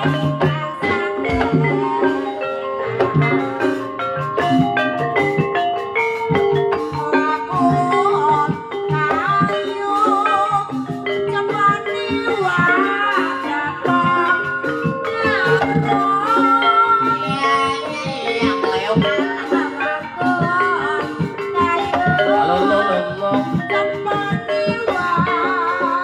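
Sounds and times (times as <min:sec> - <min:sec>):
drums: 0:00.0 - 0:26.0
gongs and metallophones playing: 0:00.0 - 0:26.0
wavering high melody: 0:00.0 - 0:26.0.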